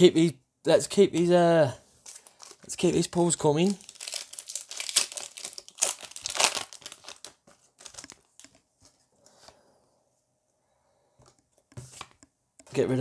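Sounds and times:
foil wrapper crinkling and tearing: 3.6 - 8.5
cards being handled: 3.6 - 9.6.

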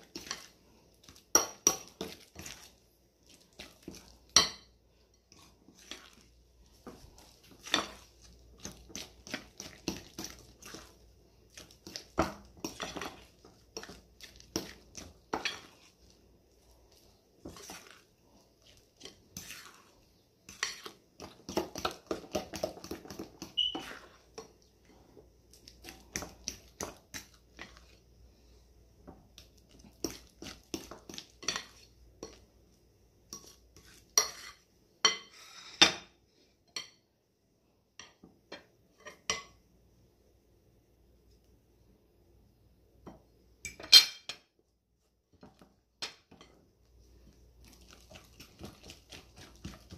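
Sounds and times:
wet batter stirring: 0.0 - 35.5, 43.1 - 49.9
spoon scraping a glass bowl: 23.4 - 24.2, 33.4 - 35.9.

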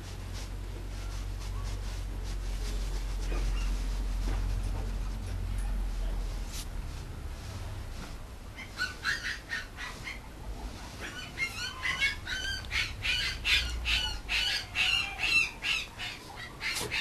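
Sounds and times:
puppy whining: 8.6 - 10.3, 10.9 - 17.0.

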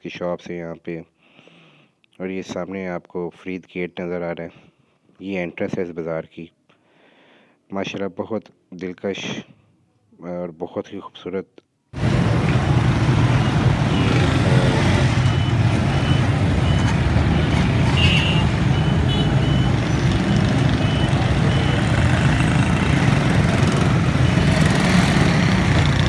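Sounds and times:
street traffic engine rumble: 12.0 - 26.0
short high beeps: 13.3 - 23.0
horn-like tone: 17.9 - 22.7.

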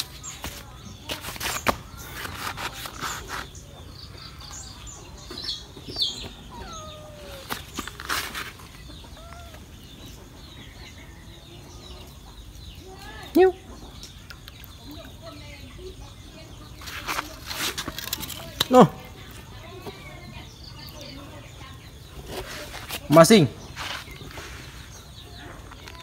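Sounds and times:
chickens clucking: 0.0 - 26.0
small birds chirping: 0.0 - 26.0
sharp clicks and rustles: 16.8 - 18.8.

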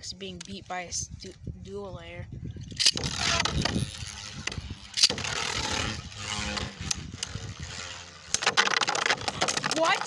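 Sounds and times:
spinning tops whirring and scraping: 2.7 - 10.0.

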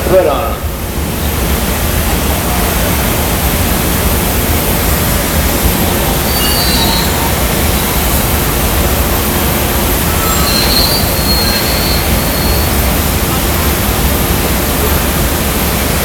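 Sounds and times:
faint high squeal: 6.3 - 8.2, 10.0 - 12.9.

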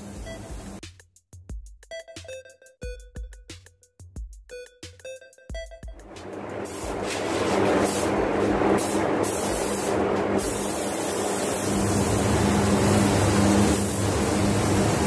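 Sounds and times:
paint spray gun hissing: 0.0 - 0.8, 6.6 - 15.0.

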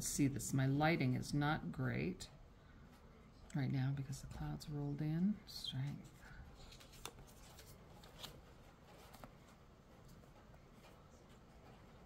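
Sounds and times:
cards sliding and handling: 6.6 - 9.4.

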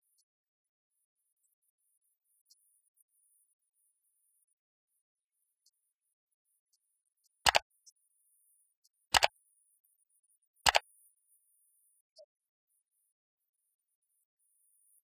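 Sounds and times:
mouse-click pops: 7.4 - 7.7, 9.1 - 9.4, 10.6 - 11.0.

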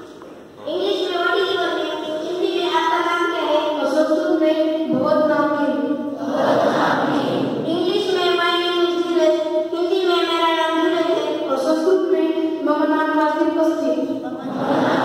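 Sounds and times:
students singing in unison: 6.2 - 7.5, 14.5 - 15.0.

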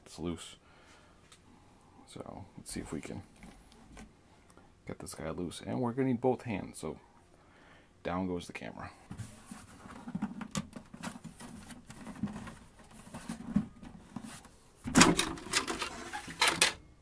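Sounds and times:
plastic scraping and clatter: 9.1 - 16.8.

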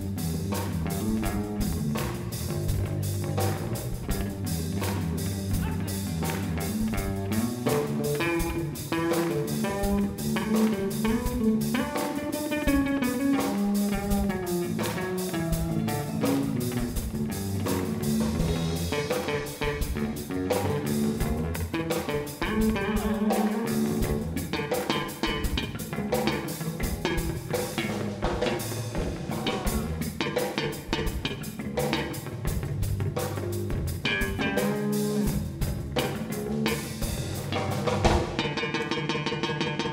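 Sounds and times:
bass guitar: 0.0 - 39.9
drum kit beat: 0.0 - 39.9
electric guitar: 0.0 - 39.9.

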